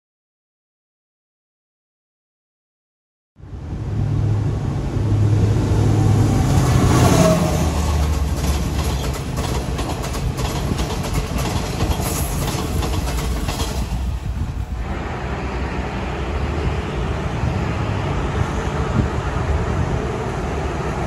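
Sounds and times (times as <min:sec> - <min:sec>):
diesel train engine drone: 0:03.4 - 0:21.0
wheels clicking over rail joints: 0:07.6 - 0:14.5.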